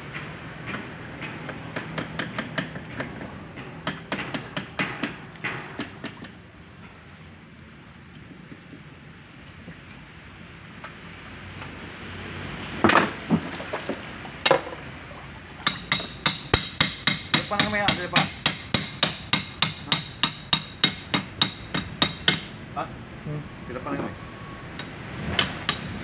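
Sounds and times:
hammer striking metal: 0:00.7 - 0:06.2, 0:15.6 - 0:22.5, 0:25.4 - 0:26.0.

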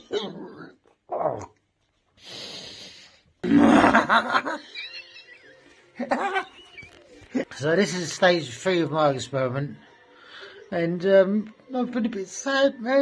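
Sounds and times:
man laughing loudly: 0:03.5 - 0:06.7.

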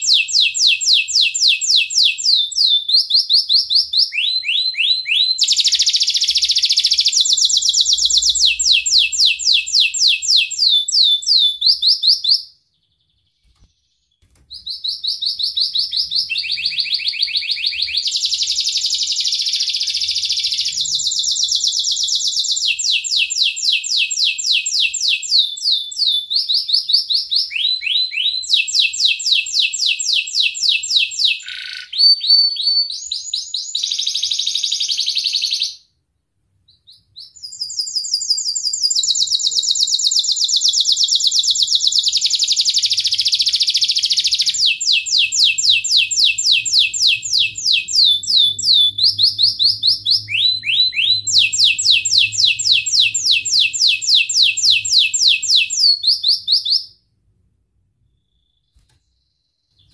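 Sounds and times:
canary singing trills: 0:00.0 - 0:35.8, 0:36.7 - 0:57.0.

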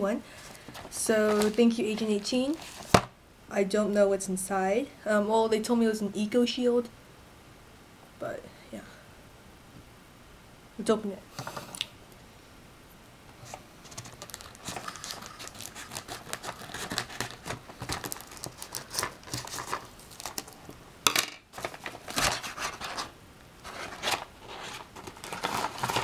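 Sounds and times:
paper envelope crinkling and tearing: 0:00.4 - 0:03.0, 0:13.8 - 0:20.8, 0:21.5 - 0:26.0
scissors snipping paper: 0:14.3 - 0:20.6.

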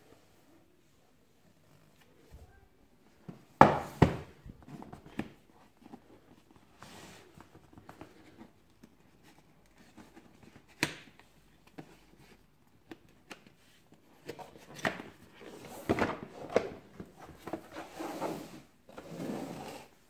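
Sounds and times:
box thumping on floor: 0:03.6 - 0:04.4.

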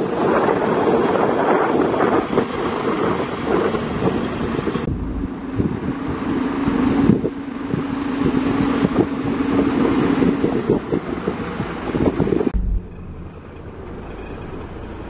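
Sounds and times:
wind buffeting microphone: 0:00.0 - 0:15.0
diesel truck engine running: 0:04.8 - 0:15.0
steady hum: 0:12.5 - 0:15.0.

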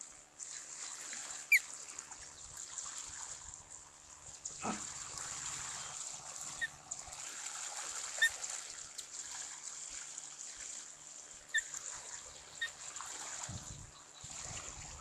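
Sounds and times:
steady outdoor hiss: 0:00.0 - 0:15.0
wind rumbling on microphone: 0:13.4 - 0:15.0.

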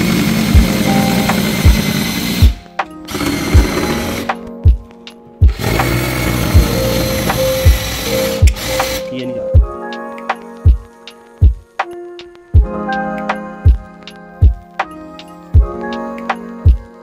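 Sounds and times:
power drill driving screws: 0:00.0 - 0:04.4, 0:05.5 - 0:09.1
background music with beat: 0:00.0 - 0:17.0.

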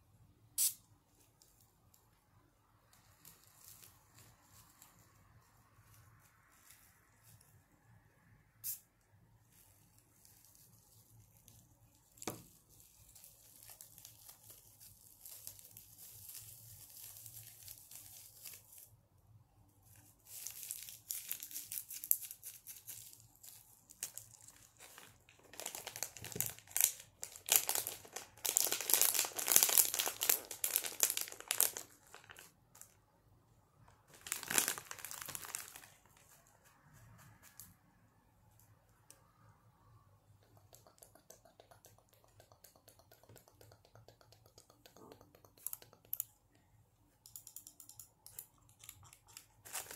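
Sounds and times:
crisp crinkling and scratching: 0:03.0 - 0:07.6, 0:09.5 - 0:19.0, 0:19.8 - 0:33.0, 0:34.1 - 0:37.8, 0:48.5 - 0:49.9.

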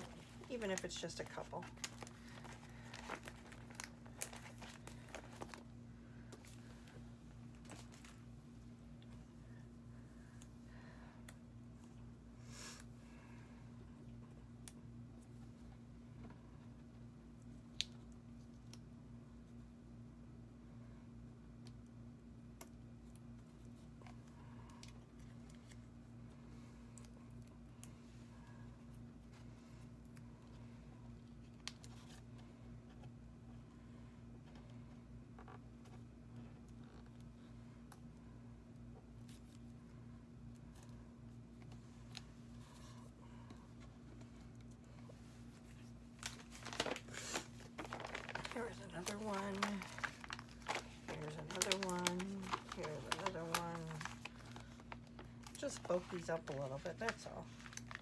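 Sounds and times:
paper clicks and rustles: 0:00.0 - 0:05.6, 0:45.7 - 0:58.0
steady low hum: 0:00.0 - 0:58.0.

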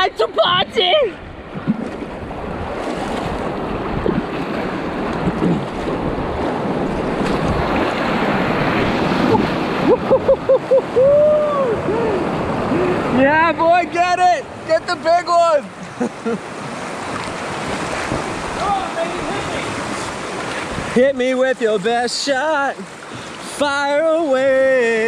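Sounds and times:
river rapids rushing: 0:03.7 - 0:25.0
man whooping: 0:09.8 - 0:12.9.

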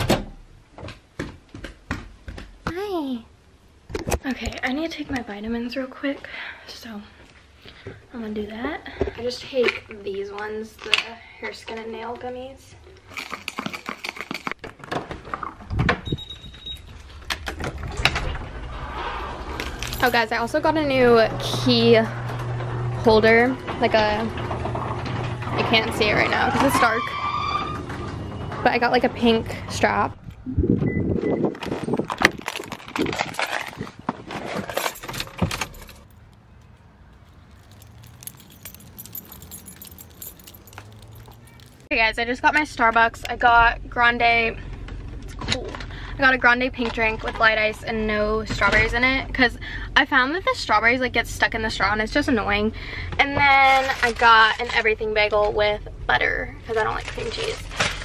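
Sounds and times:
car keys jangling: 0:19.6 - 0:20.3, 0:34.7 - 0:41.9.

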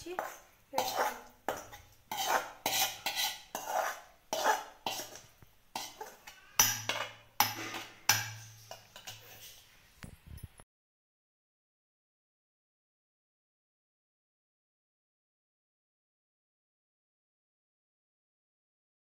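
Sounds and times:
metal spoon scraping metal pan: 0:00.0 - 0:09.8.

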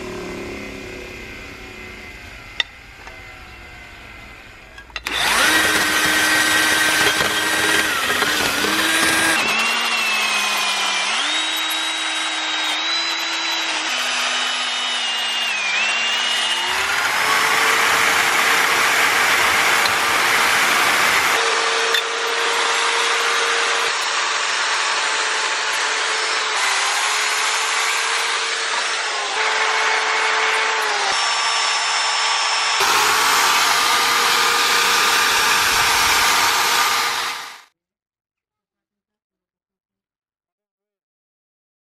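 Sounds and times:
electric drill motor whine: 0:00.0 - 0:37.7.

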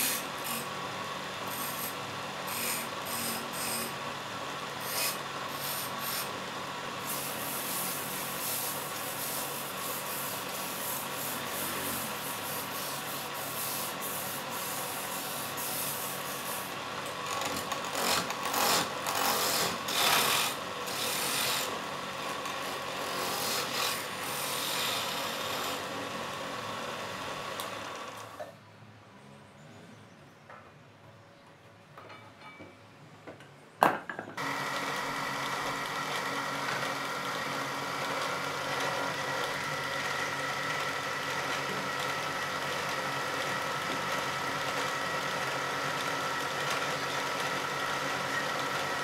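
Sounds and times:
chisel scraping spinning wood: 0:00.0 - 0:00.8, 0:01.4 - 0:04.0, 0:04.8 - 0:06.4, 0:07.0 - 0:26.1
wood lathe humming: 0:00.0 - 0:28.4, 0:34.4 - 0:49.0.

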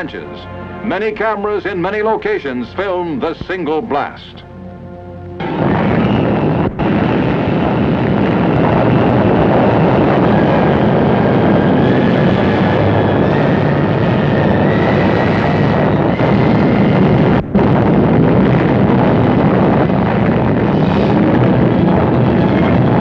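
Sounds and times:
rising whine: 0:03.2 - 0:23.0
explosion roar: 0:05.4 - 0:23.0.

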